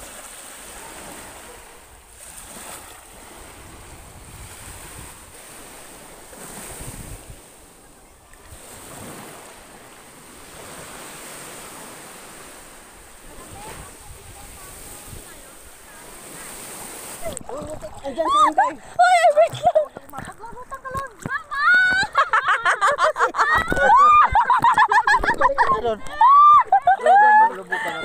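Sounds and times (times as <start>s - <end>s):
small waves breaking on beach: 0.0s - 28.0s
wind rumbling on microphone: 1.9s - 7.6s, 13.1s - 22.2s.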